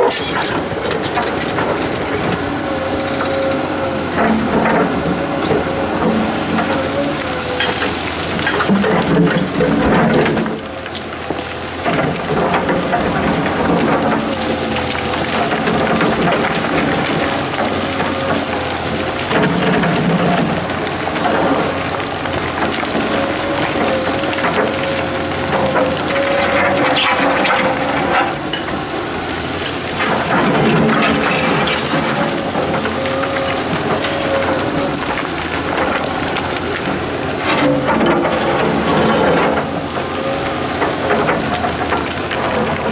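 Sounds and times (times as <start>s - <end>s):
excavator engine and hydraulics whine: 0.0s - 42.9s.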